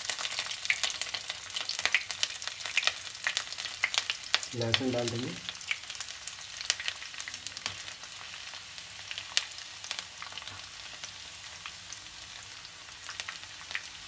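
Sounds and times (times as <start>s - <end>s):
garlic and ginger sizzling in oil: 0.0s - 14.0s.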